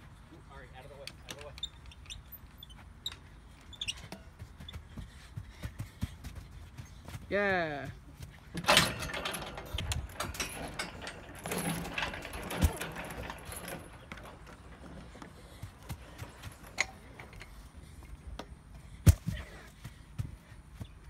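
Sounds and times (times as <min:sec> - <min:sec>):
playground equipment rattling on chains: 0:08.5 - 0:18.3.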